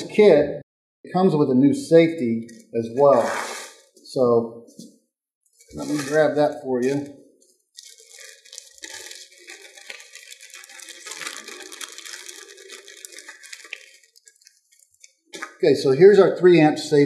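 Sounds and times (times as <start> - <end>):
packaging rustling: 7.8 - 15.6.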